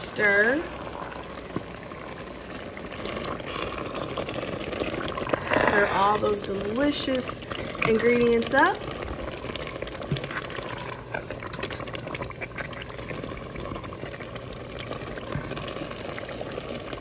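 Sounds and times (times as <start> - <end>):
sauce bubbling with pops: 0.0 - 17.0
wooden spatula stirring: 2.8 - 15.9.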